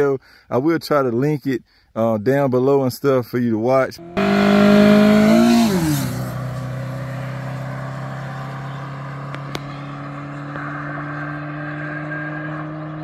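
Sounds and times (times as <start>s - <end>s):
car engine driving past: 4.0s - 13.0s.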